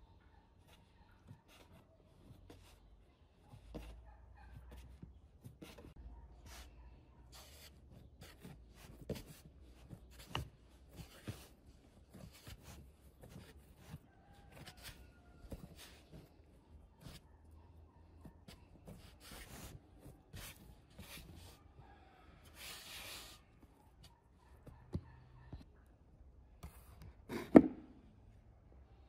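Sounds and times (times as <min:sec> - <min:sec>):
hands kneading dough: 0:01.3 - 0:17.6.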